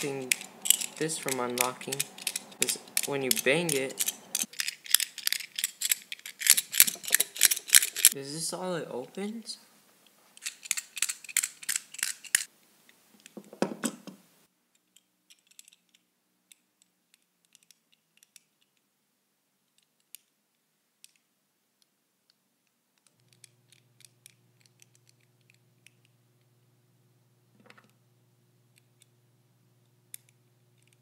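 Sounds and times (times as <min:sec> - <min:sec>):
metal padlock clicking: 0:00.0 - 0:08.2, 0:10.4 - 0:12.5, 0:23.1 - 0:26.1.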